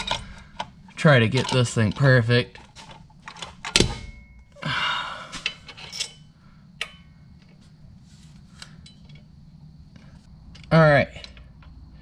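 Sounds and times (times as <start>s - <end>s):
metal clicks and knocks: 0.0s - 4.5s.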